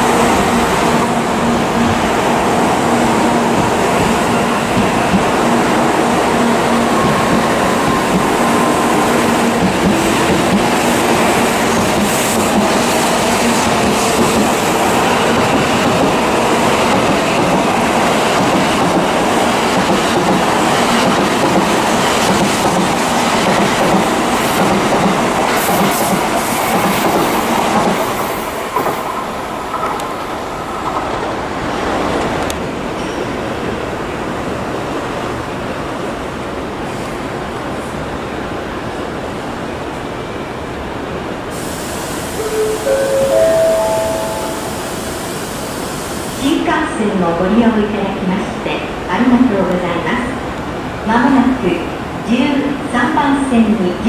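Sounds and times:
train wheels rushing: 0:00.0 - 0:33.3.

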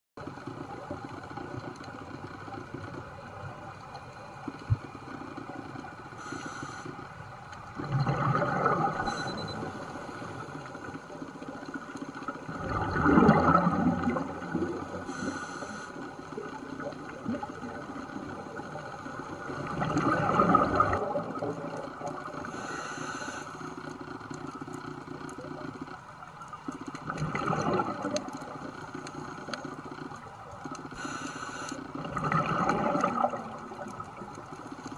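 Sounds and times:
regulator inhalation hiss: 0:06.2 - 0:07.1, 0:15.1 - 0:16.1, 0:22.4 - 0:23.8, 0:30.9 - 0:31.9
exhaled bubbles rushing: 0:07.7 - 0:15.2, 0:16.3 - 0:22.6, 0:25.3 - 0:30.1, 0:31.9 - 0:34.7.

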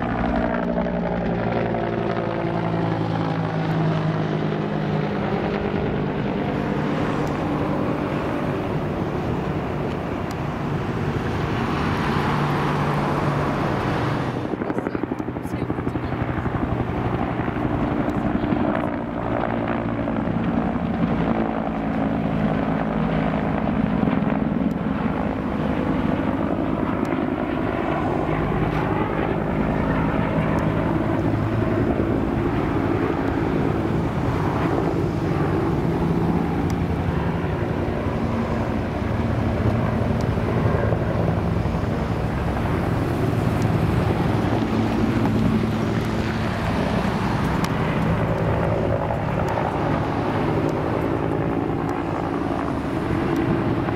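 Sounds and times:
helicopter flying overhead: 0:00.0 - 0:53.9.

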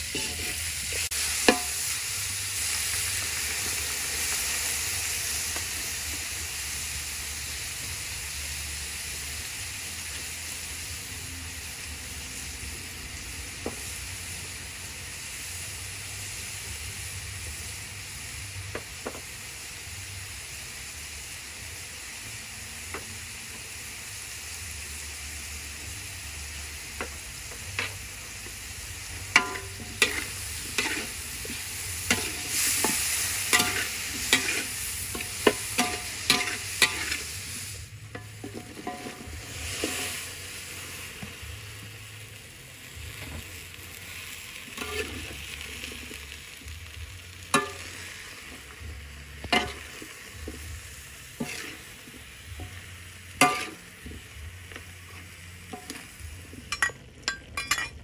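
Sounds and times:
spatula scraping a wok: 0:00.0 - 0:10.8, 0:26.2 - 0:41.4, 0:43.1 - 0:46.4, 0:47.1 - 0:56.9
meat sizzling in a wok: 0:00.0 - 0:58.0.

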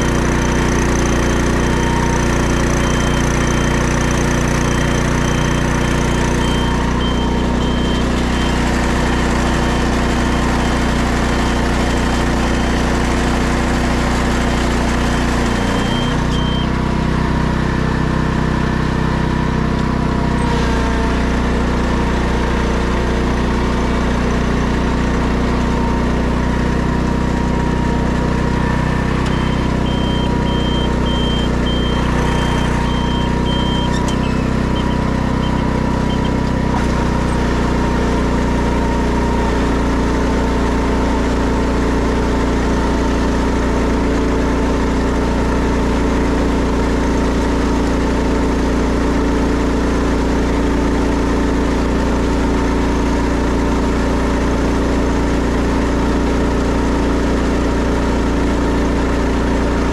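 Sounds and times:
engine droning: 0:00.0 - 0:59.9
rapid high beeping: 0:00.3 - 0:08.8, 0:29.3 - 0:36.4.

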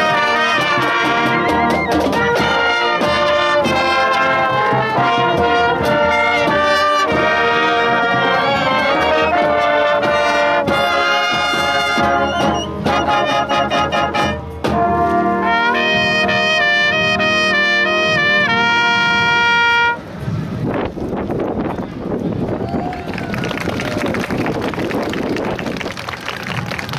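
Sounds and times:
marching band playing: 0:00.0 - 0:20.3.

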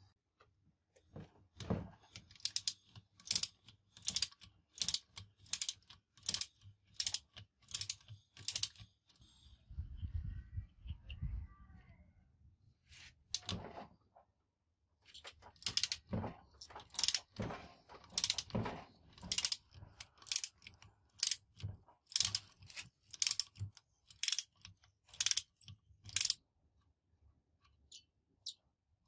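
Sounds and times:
ratchet wrench clicking: 0:02.4 - 0:08.8, 0:19.3 - 0:19.6, 0:20.2 - 0:20.6, 0:21.2 - 0:21.4, 0:22.1 - 0:24.5, 0:25.1 - 0:26.4.

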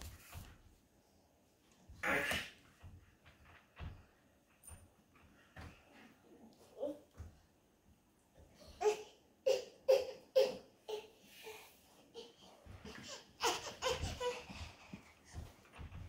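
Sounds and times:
babies babbling and squealing: 0:08.8 - 0:15.1.

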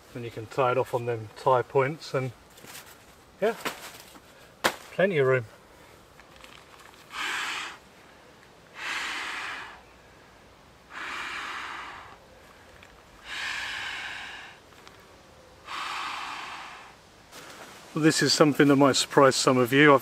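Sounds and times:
man blowing into inflatable valve: 0:08.8 - 0:09.8.

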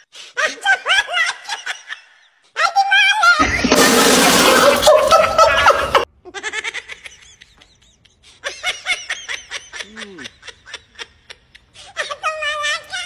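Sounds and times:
person laughing: 0:03.4 - 0:08.8, 0:09.5 - 0:11.2
loud noisy burst: 0:03.5 - 0:06.0.

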